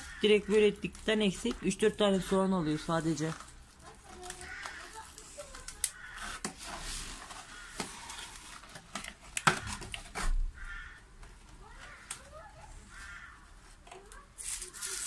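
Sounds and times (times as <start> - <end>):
plastic bottle clicks and crinkles: 3.2 - 10.4.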